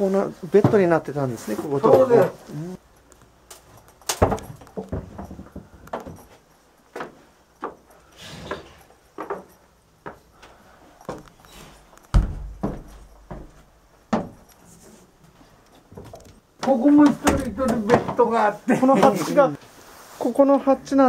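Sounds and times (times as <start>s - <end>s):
footsteps in boat cabin: 4.3s - 7.9s, 9.0s - 17.9s
heavy thumps: 12.0s - 14.5s.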